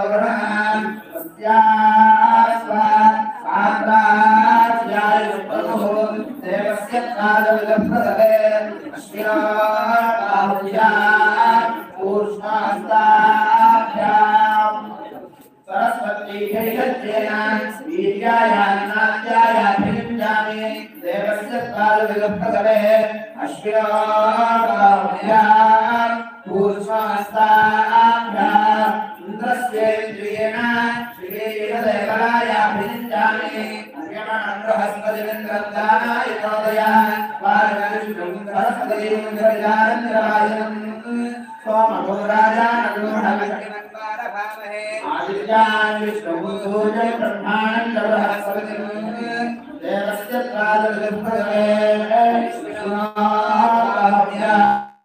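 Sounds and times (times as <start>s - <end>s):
men chanting together: 0.0s - 15.1s, 15.7s - 43.8s, 45.0s - 54.9s.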